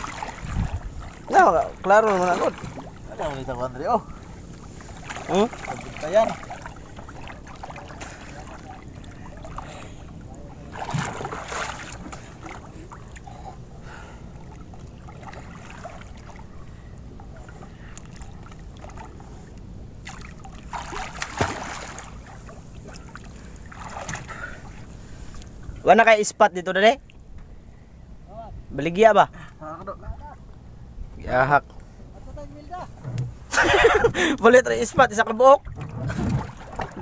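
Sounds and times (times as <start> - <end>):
wind rumble on microphone: 0.0 - 1.8, 34.9 - 37.0
water sloshing and splashing: 0.0 - 26.2, 32.9 - 37.0.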